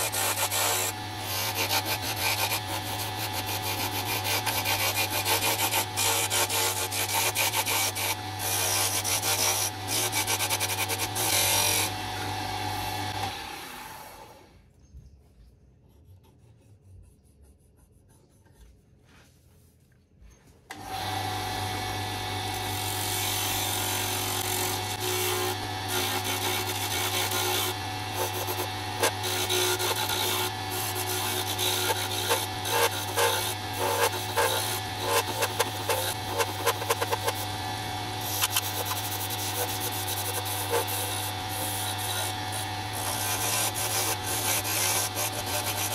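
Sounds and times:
chisel scraping spinning wood: 0.0 - 12.4, 21.6 - 45.9
lathe motor hum: 0.0 - 14.4, 20.7 - 45.9.

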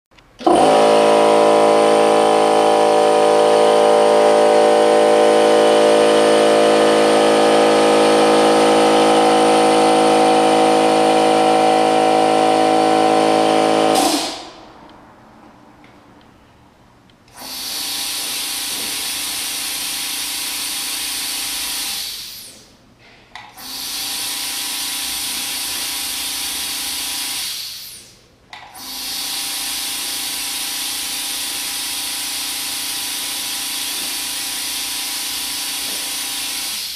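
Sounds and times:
air compressor droning: 0.3 - 14.8, 17.3 - 36.9
quieter tankless compressor running: 0.4 - 14.8, 28.8 - 36.9.

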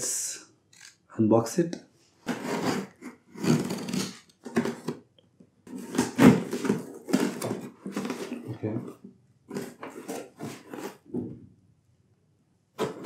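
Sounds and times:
tape tearing off cardboard: 2.2 - 5.0, 5.7 - 8.4
knife slitting packing tape: 2.3 - 4.9.

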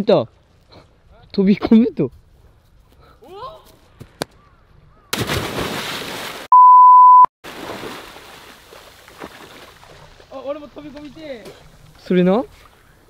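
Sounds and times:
loud splash into water: 5.1 - 6.5, 7.4 - 9.8
water churning and sloshing: 5.2 - 6.5, 7.4 - 12.8
steady electronic beep: 6.5 - 7.3.

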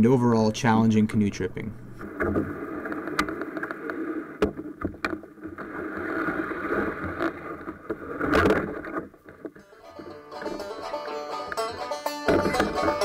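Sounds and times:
canoe hull scraping: 1.9 - 13.0
water sloshing: 1.9 - 13.0
sharp knocks on boat: 4.4 - 5.2, 12.3 - 13.0.

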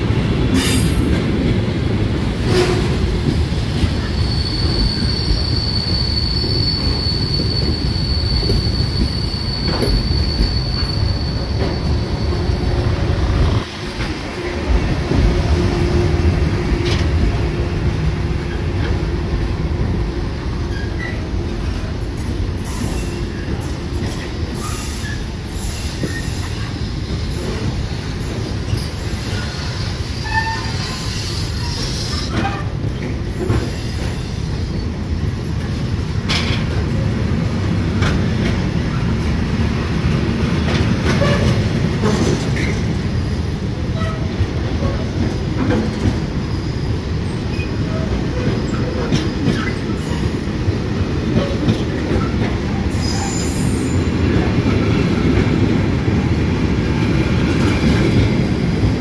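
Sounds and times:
train wheels rumbling: 0.0 - 59.0
wheel squeals: 4.0 - 13.6.

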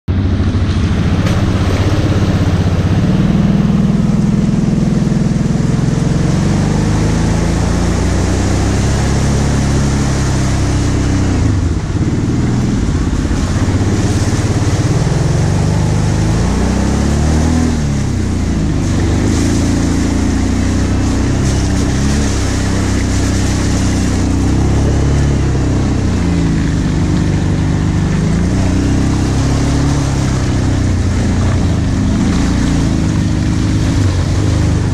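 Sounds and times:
quad engine revving: 0.1 - 34.9
splashing through mud and water: 0.1 - 34.9
wind: 0.1 - 34.9.

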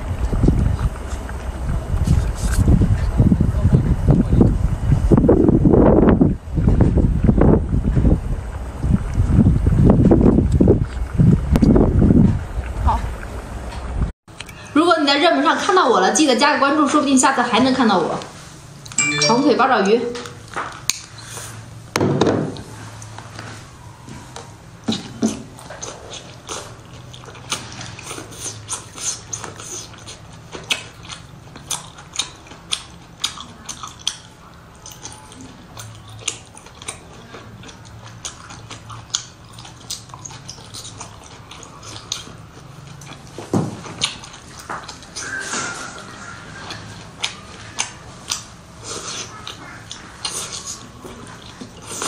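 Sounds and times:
wet chewing mouth clicks: 24.9 - 52.0.

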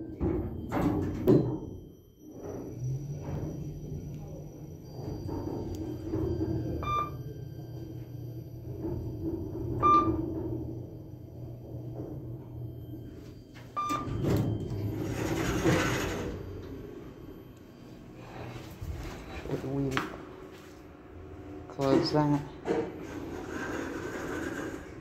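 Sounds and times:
elevator doors sliding open: 0.0 - 19.4, 21.8 - 25.0
elevator humming: 0.0 - 25.0
short electronic beeps: 6.8 - 7.2, 9.8 - 10.2, 13.7 - 17.9.

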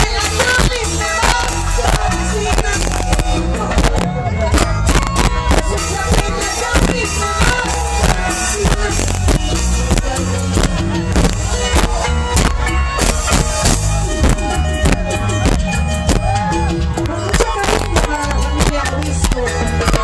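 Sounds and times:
man and woman singing: 0.0 - 11.9, 17.0 - 20.0
live band music: 0.0 - 20.0.

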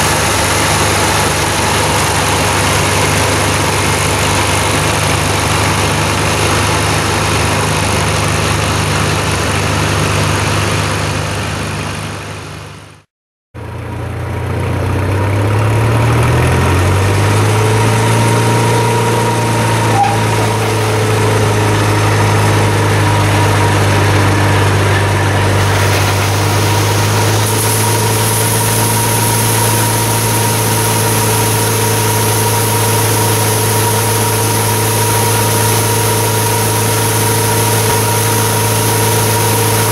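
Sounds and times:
grain pouring into metal tank: 0.0 - 9.4, 19.2 - 39.9
combine engine running: 0.0 - 39.9.

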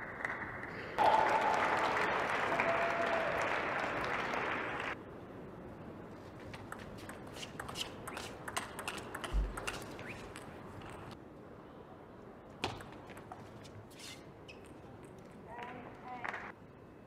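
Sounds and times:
table tennis ball clicks: 6.5 - 11.1.

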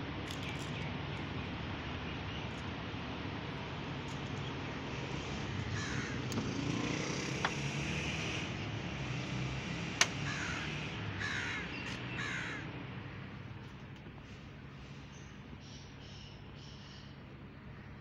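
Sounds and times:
crows cawing: 5.4 - 6.7, 10.1 - 12.8
sharp clicks: 10.0 - 10.2.

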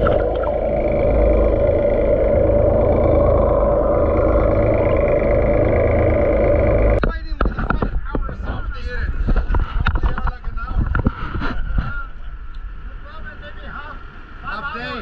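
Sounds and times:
underwater churning water rush: 0.0 - 7.0
boat low rumble: 0.0 - 14.6.

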